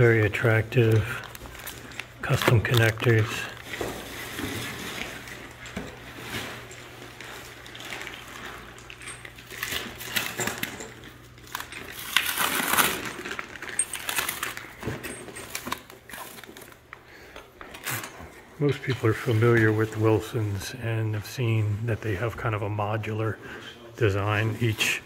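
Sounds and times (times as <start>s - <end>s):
equipment rustling and knocking: 0.0s - 11.9s, 12.9s - 16.8s
plastic wrapping rustling: 0.0s - 20.6s.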